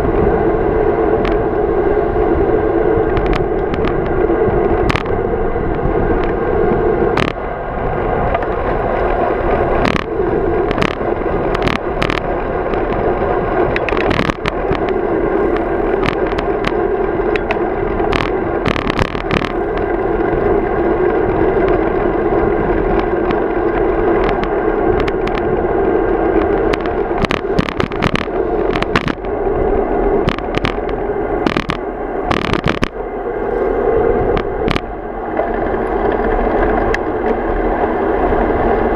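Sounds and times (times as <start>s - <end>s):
bike tyre rolling on asphalt: 0.0s - 38.9s
bike clicking and knocking over bumps: 8.4s - 15.0s, 15.6s - 20.4s, 26.4s - 29.3s, 30.3s - 32.9s.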